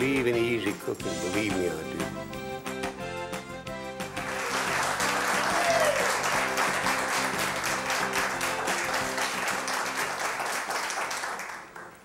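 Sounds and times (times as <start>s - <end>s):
applause: 4.0s - 12.0s.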